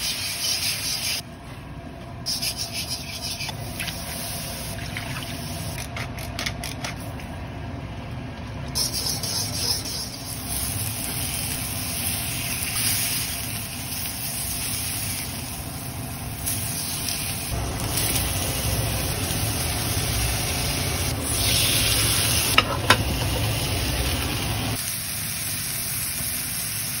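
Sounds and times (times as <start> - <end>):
meat sizzling on grill: 10.3 - 27.0.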